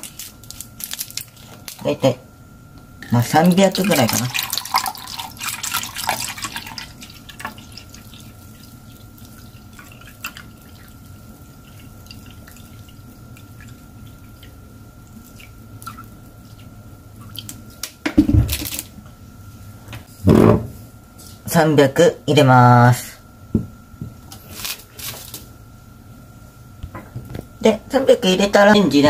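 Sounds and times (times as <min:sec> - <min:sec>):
water trickling into jug: 0:03.4 - 0:16.1.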